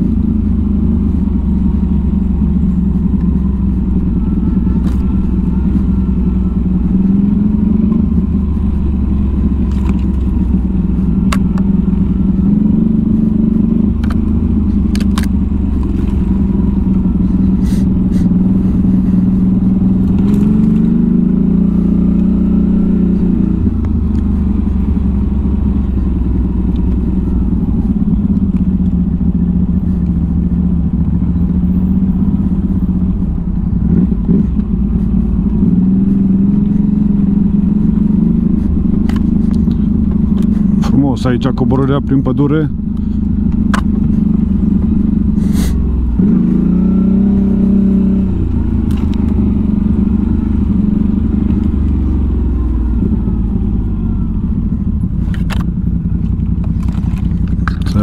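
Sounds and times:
atv engine running and revving: 0.0 - 58.0
knocks and rattles over rough ground: 55.0 - 58.0.

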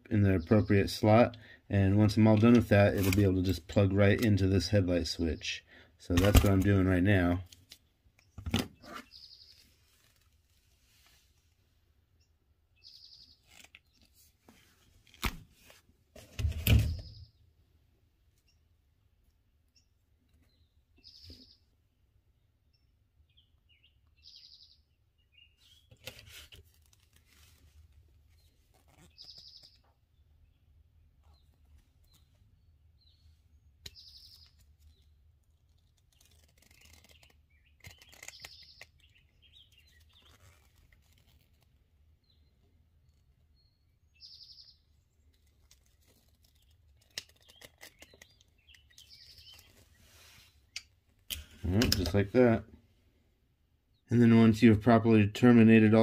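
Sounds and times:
hands rustling a wire: 7.4 - 11.6, 25.8 - 29.9, 33.8 - 42.0, 45.0 - 52.3
small bird chirping: 8.2 - 10.2, 12.2 - 14.2, 19.7 - 21.7, 22.7 - 26.1, 28.3 - 30.6, 31.2 - 41.6, 42.2 - 52.2.

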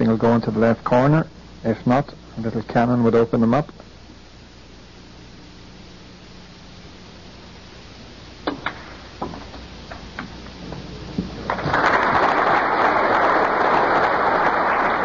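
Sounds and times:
audience applauding: 11.4 - 15.0.

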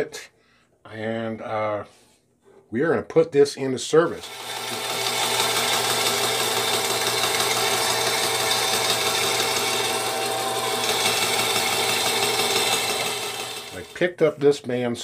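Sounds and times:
saw cutting through wood: 4.1 - 14.4
bandsaw motor hum: 4.2 - 14.0.

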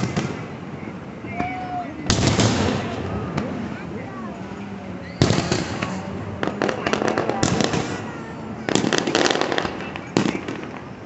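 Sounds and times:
firework crackling: 0.0 - 11.0
firework shells bursting: 5.2 - 11.0.

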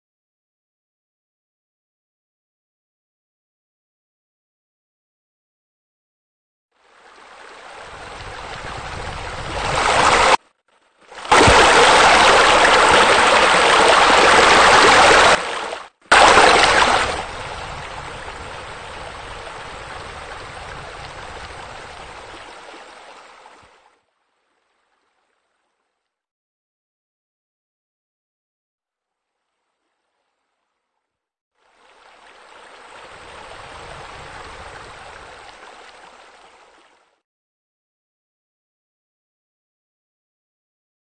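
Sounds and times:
waterfall rushing into pool: 7.2 - 10.4, 11.2 - 23.2.

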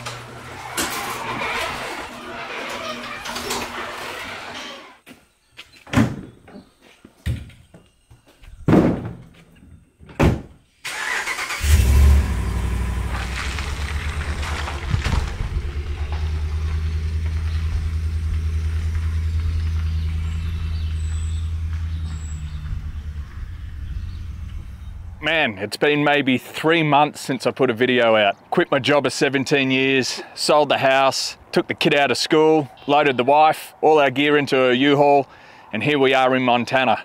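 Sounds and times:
truck engine starting and running: 0.0 - 4.9, 10.8 - 25.3
thumps: 13.1 - 19.9.

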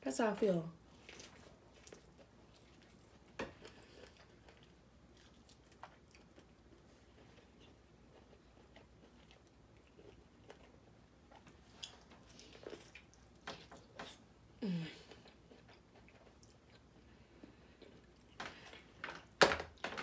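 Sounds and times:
chewing corn on the cob: 0.9 - 14.3, 15.0 - 19.3
person humming: 14.6 - 15.1.

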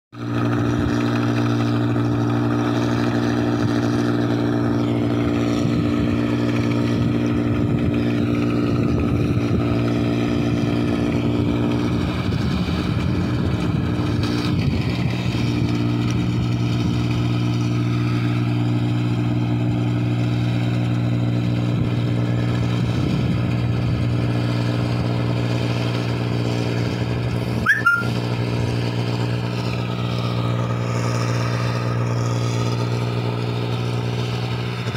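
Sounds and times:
engine droning: 0.2 - 34.9
short high chirp: 27.6 - 28.2.

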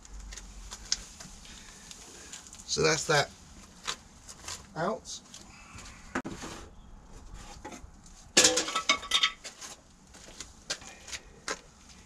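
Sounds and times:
metal tools clinking: 8.4 - 9.4.

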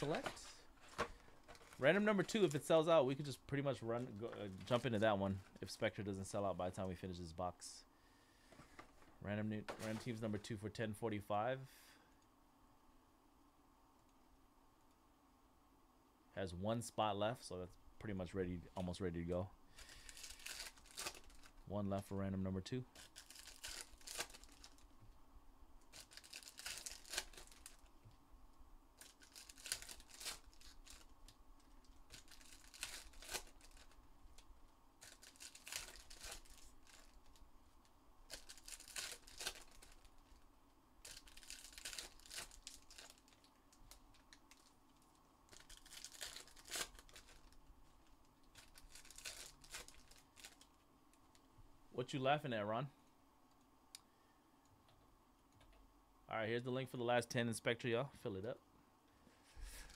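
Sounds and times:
wrappers tearing and crinkling: 0.0 - 3.3, 19.8 - 21.6, 22.9 - 24.9, 25.8 - 27.9, 29.0 - 34.4, 35.0 - 40.4, 41.0 - 50.7.

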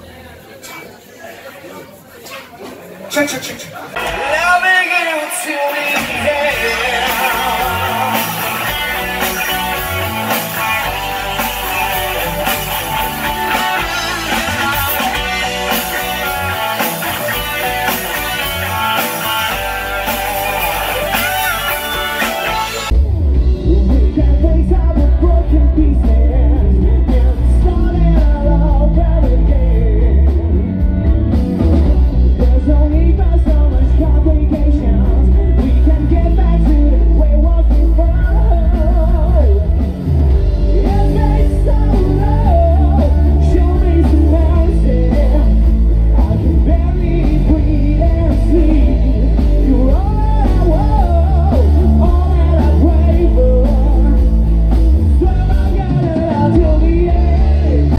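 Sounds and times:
rock band playing live: 3.9 - 57.9
man singing: 4.0 - 22.9, 23.6 - 30.8, 32.1 - 57.9.

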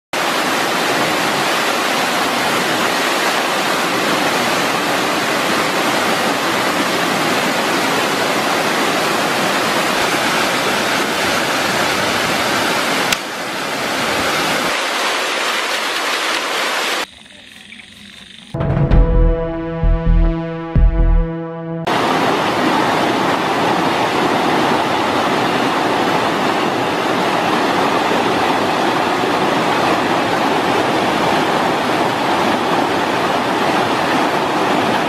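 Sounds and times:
waterfall rushing: 0.2 - 17.0.

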